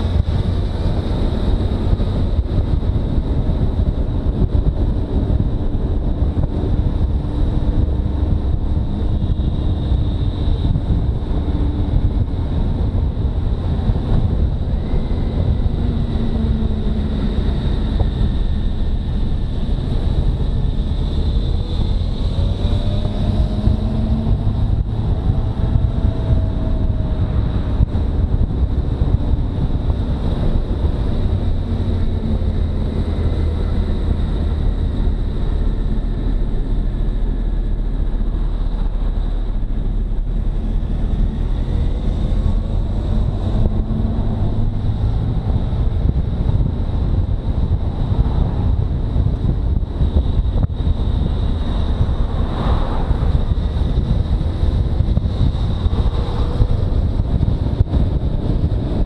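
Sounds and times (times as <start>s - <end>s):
engine note rising and falling: 0.0s - 59.0s
motorcycle engine drone: 0.0s - 59.0s
wind rush on microphone: 0.0s - 59.0s.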